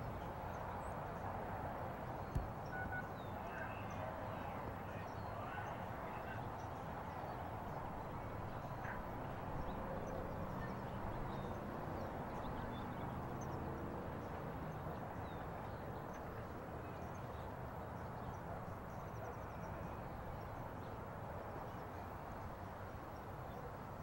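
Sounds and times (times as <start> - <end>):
distant helicopter rotors thumping: 2.3 - 3.0.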